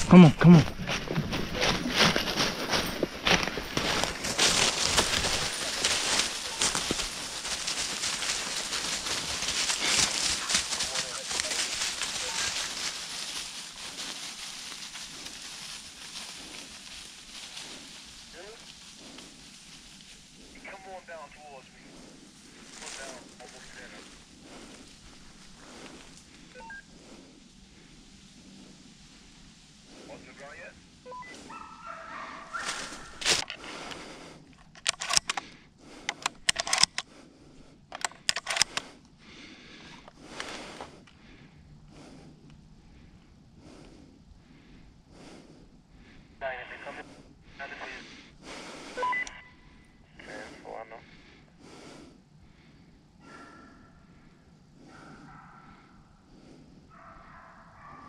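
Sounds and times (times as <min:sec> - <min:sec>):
footsteps on dry leaves: 0:00.0 - 0:20.4, 0:31.4 - 0:33.9.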